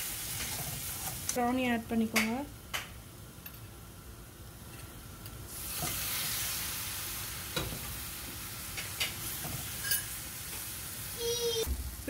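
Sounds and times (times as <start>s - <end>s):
prawns sizzling in hot pan: 0.0s - 1.8s, 5.5s - 12.0s.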